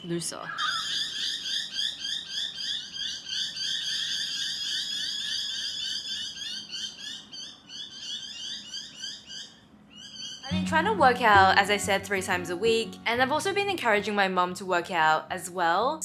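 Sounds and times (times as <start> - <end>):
animal chirping rapidly: 0.4 - 10.5.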